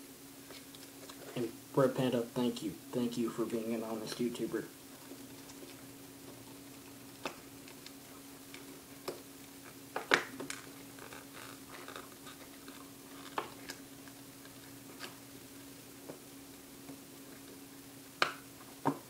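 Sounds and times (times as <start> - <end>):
low hum of recording static: 0.0 - 19.0
plastic packaging clicks and crinkles: 6.8 - 13.8.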